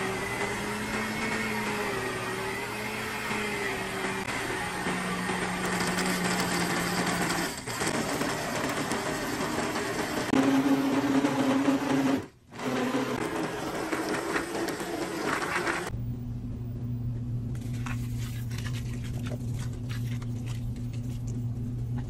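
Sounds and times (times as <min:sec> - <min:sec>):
blender motor running: 0:00.0 - 0:15.9.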